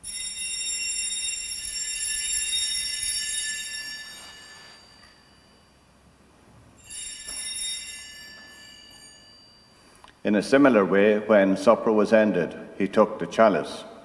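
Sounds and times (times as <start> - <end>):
altar bells ringing: 0.0 - 10.9.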